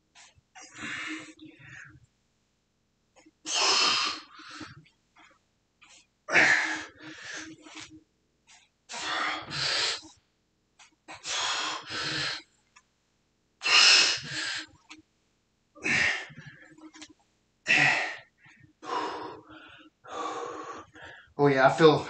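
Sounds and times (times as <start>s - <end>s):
man breathing hard: 8.9s - 10.1s, 11.2s - 12.4s, 17.7s - 21.4s.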